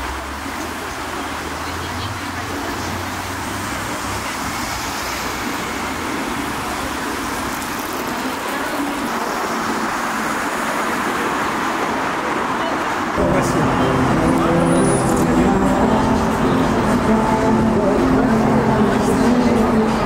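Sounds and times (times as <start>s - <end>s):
city road traffic: 0.0s - 20.0s.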